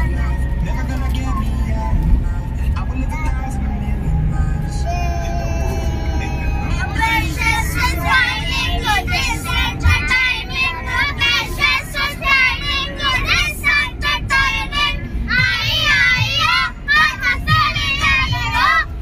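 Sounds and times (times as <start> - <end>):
van rumbling: 0.0 - 19.0
young children singing: 4.7 - 18.9.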